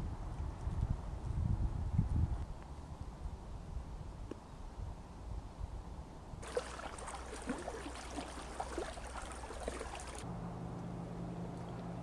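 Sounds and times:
lake water lapping and gurgling: 6.4 - 10.2
small water splashes: 6.4 - 10.2
low hum: 6.4 - 12.0.

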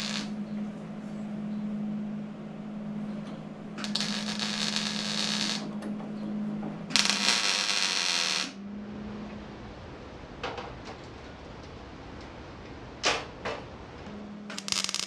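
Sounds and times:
welding arc crackling: 0.0 - 0.4, 3.8 - 5.7, 6.9 - 8.6, 14.5 - 15.0
welder hum: 0.0 - 9.4, 14.1 - 15.0.

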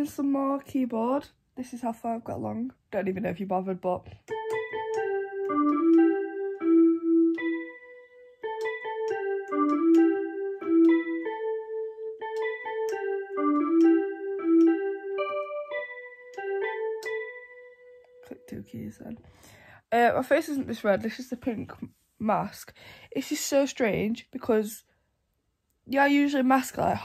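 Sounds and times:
electronic keyboard melody: 4.2 - 19.2.

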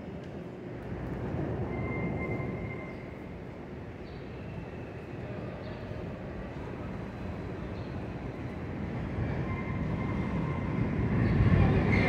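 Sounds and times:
subway train rumbling: 0.0 - 12.0
high wheel squeal: 1.6 - 3.2, 9.2 - 12.0.

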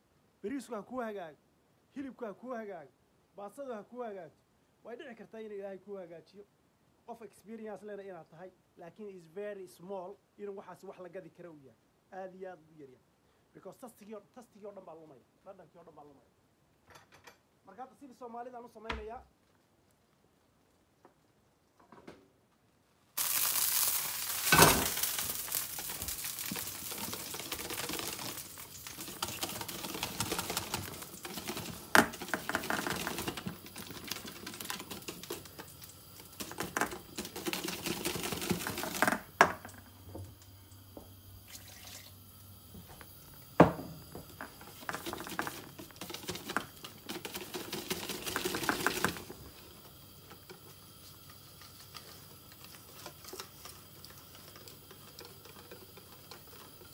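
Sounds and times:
whisk beating batter in bowl: 26.3 - 39.0, 44.5 - 49.6, 51.2 - 56.9.

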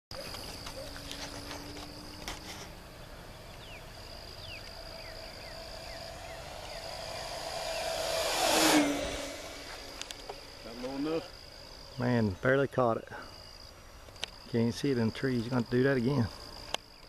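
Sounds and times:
model plane motor whine: 0.3 - 11.7.

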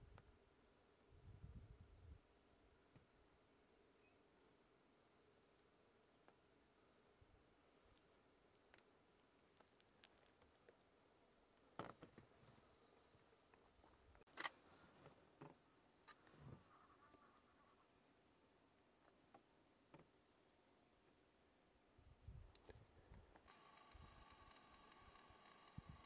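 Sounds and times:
high-pitched insect drone: 23.5 - 26.0.

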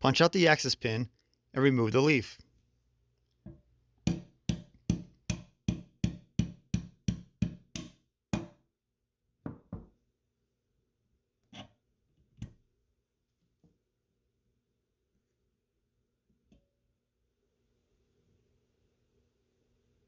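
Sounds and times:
hammer tapping metal punch: 4.0 - 8.5.

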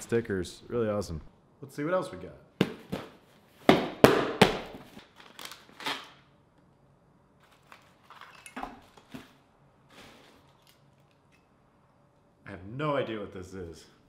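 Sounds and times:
packing crinkling: 4.9 - 6.1, 7.4 - 9.2
cardboard package tearing: 5.0 - 6.1.

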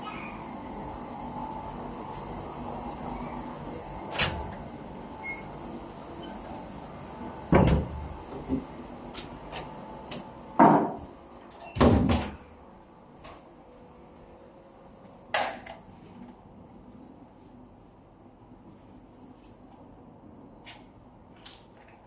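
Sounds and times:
steady background hum: 0.0 - 22.0
wooden door knocks and thuds: 11.8 - 12.4.

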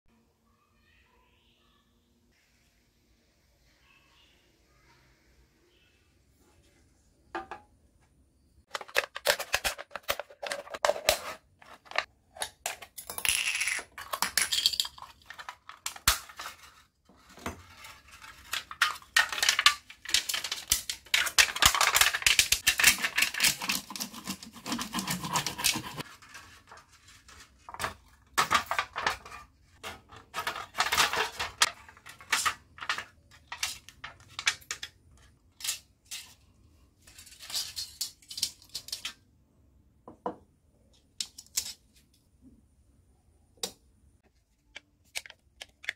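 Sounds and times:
aluminium sheet crinkling: 8.7 - 12.1, 14.2 - 39.2.

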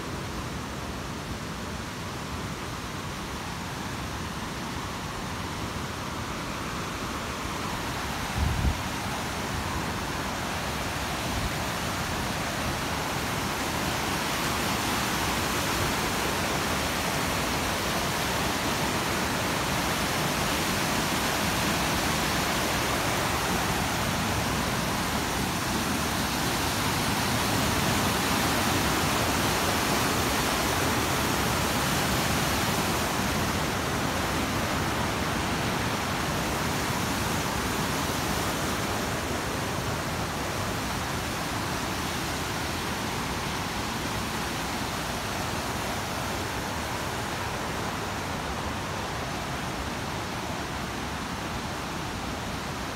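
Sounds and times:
fast-flowing stream rushing: 0.0 - 52.9.

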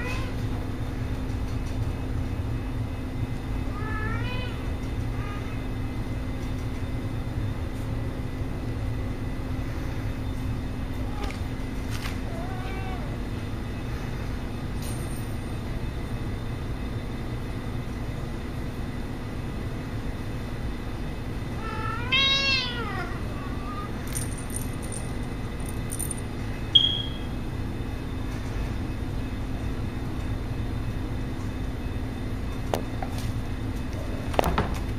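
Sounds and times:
low background hum: 0.0 - 34.9
kitten meowing: 21.6 - 23.9
high-pitched chirp: 26.8 - 27.3.

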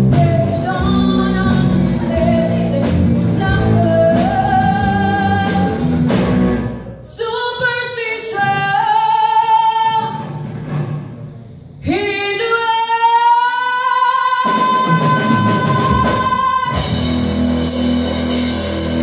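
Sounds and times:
woman singing: 0.0 - 6.0, 7.0 - 10.4, 11.8 - 17.1
live band playing: 0.0 - 19.0.

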